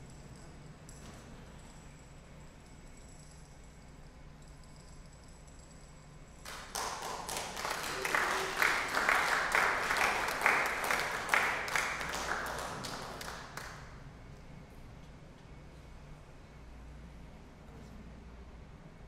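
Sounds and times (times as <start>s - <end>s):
congregation applauding: 6.4s - 14.0s.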